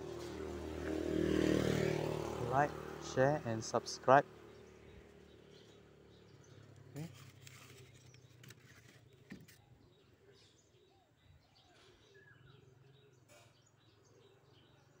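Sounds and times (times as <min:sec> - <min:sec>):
faint bird chirps: 0:04.8 - 0:15.0.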